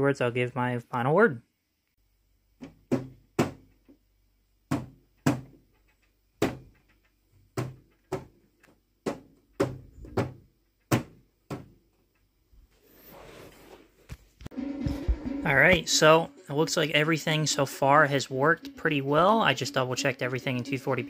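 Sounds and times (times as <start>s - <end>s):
hard knocks on plastic cabinet: 2.6s - 3.7s, 4.7s - 5.6s, 6.4s - 6.7s, 7.5s - 8.4s, 9.0s - 11.8s.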